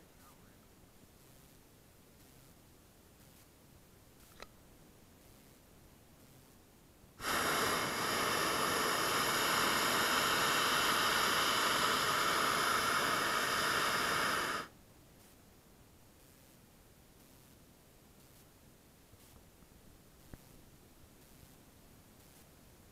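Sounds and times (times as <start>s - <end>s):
propane burner rushing hiss: 7.2s - 14.7s.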